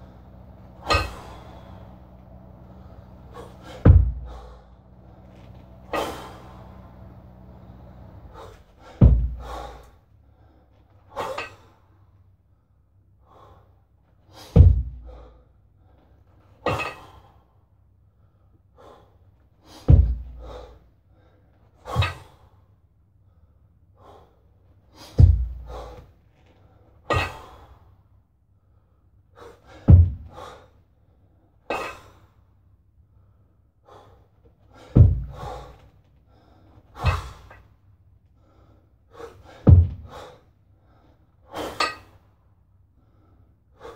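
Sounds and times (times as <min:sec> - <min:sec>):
heavy kettlebell thuds: 0:00.1 - 0:07.7, 0:08.3 - 0:10.0, 0:14.5 - 0:15.3, 0:16.7 - 0:17.2, 0:19.8 - 0:20.8, 0:21.9 - 0:22.4, 0:25.1 - 0:26.1, 0:27.1 - 0:27.7, 0:29.7 - 0:30.6, 0:34.8 - 0:35.9, 0:37.0 - 0:37.7, 0:39.3 - 0:40.4.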